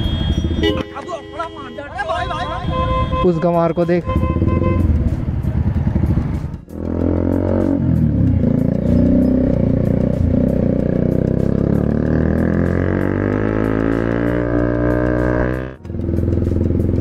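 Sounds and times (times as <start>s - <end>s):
motorcycle engine revving: 3.6s - 17.0s.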